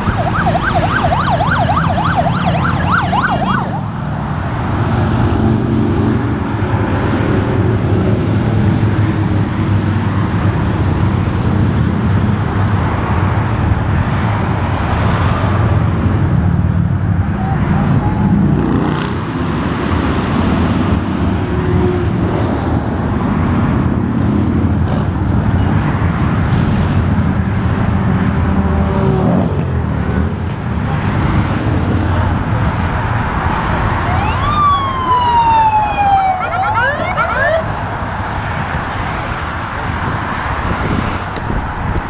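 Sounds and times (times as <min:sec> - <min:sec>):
siren wailing and whooping: 0:00.0 - 0:04.1, 0:33.8 - 0:37.9
highway traffic: 0:00.0 - 0:42.0.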